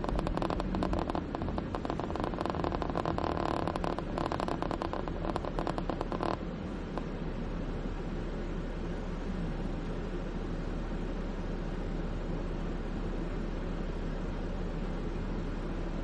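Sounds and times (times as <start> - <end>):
fast crackling rattle in car: 0.0 - 7.7
car idling hum: 0.0 - 16.0
road and engine rumble: 0.0 - 16.0.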